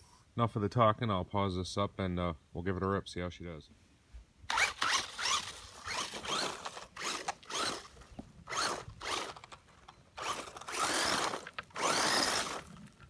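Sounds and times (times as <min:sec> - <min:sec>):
electric toy car motor whining: 0:04.5 - 0:09.5, 0:10.2 - 0:12.9.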